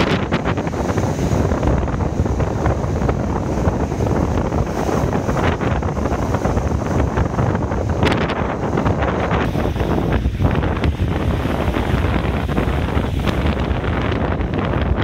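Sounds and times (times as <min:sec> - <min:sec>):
water churning through gully: 0:00.0 - 0:15.0
waves crashing against rocks: 0:00.0 - 0:15.0
wind buffeting microphone: 0:00.0 - 0:15.0.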